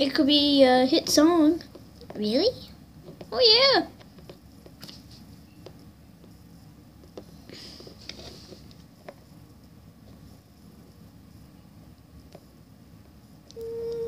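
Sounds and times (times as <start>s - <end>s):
soft rustle: 7.3s - 11.1s.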